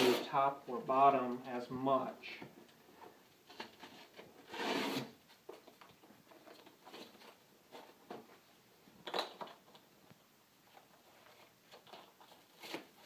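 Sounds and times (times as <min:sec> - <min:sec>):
soft rustling: 0:09.7 - 0:13.0.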